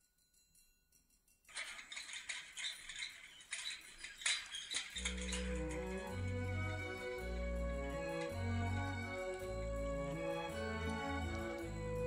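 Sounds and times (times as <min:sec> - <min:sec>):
rattling and clinking: 0:01.0 - 0:12.0
gentle background music: 0:05.0 - 0:12.0.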